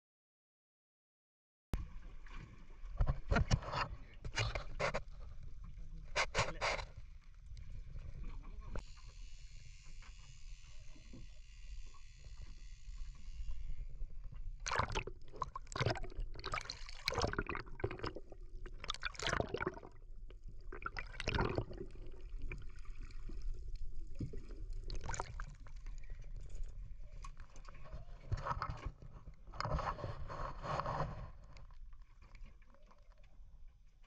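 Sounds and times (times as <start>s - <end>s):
water gurgling and sloshing: 1.8s - 34.0s
rushes of water: 12.0s - 33.0s.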